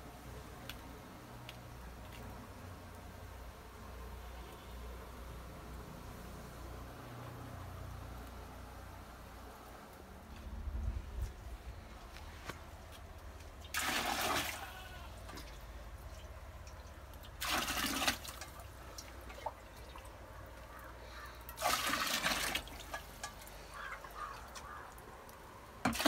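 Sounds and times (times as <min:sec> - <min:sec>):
fire crackling: 0:04.8 - 0:14.2, 0:22.7 - 0:25.9
water splashing: 0:13.2 - 0:26.0.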